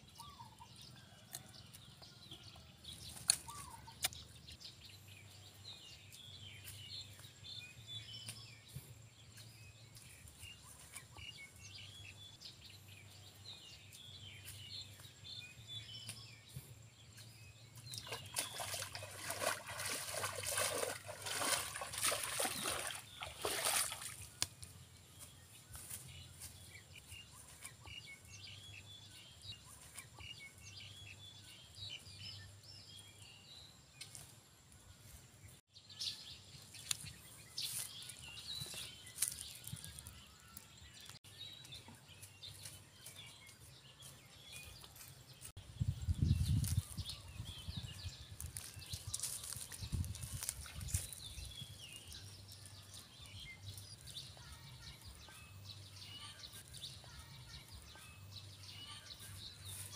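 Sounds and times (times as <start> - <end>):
small birds chirping: 0.0 - 59.9
feet splashing through mud puddle: 17.8 - 28.0, 46.6 - 54.4.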